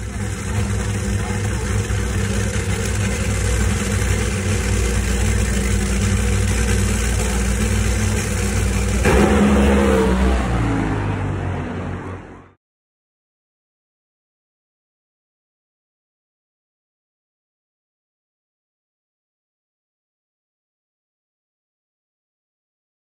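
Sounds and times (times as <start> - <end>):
racing car engine revving: 0.0 - 12.6.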